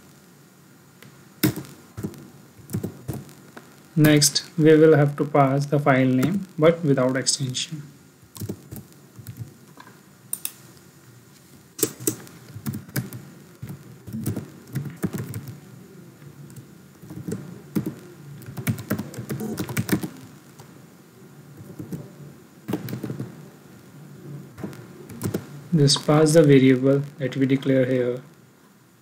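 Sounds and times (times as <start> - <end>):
typing on a computer keyboard: 8.4 - 9.5, 11.8 - 15.6, 17.1 - 20.2, 25.1 - 25.4.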